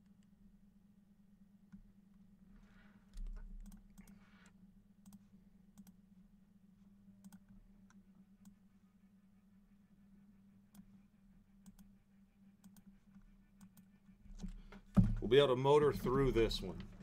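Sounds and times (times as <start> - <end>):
low steady hum: 0.0 - 17.0
dull thump: 14.9 - 15.4.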